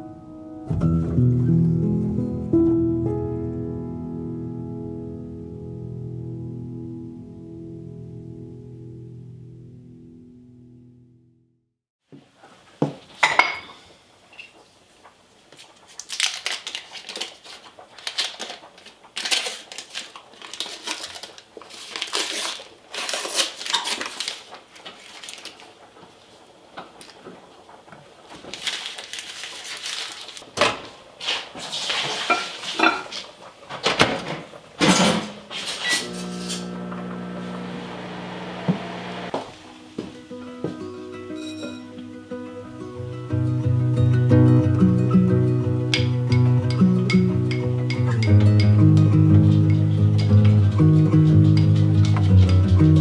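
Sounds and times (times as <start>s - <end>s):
microwave oven humming: 35.9s - 39.4s
spoon clinking in a glass bowl: 41.4s - 41.9s.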